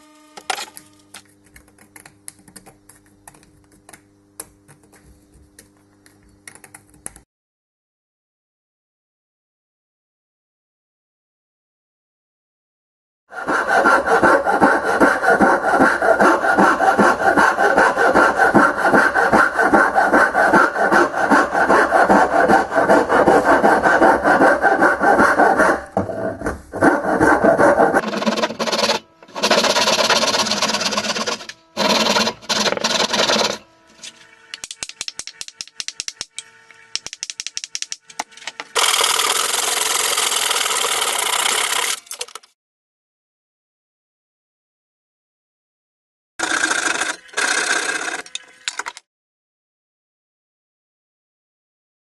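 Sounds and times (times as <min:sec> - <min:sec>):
rasp filing wood: 0:13.3 - 0:33.8
handsaw cutting wood: 0:13.3 - 0:34.2, 0:35.6 - 0:42.0, 0:46.4 - 0:48.4.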